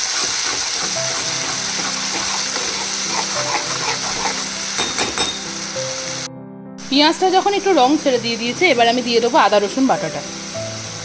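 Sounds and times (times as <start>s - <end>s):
spatula stirring and scraping: 0.0s - 5.6s
onion paste sizzling in oil: 0.0s - 6.3s, 6.9s - 11.0s.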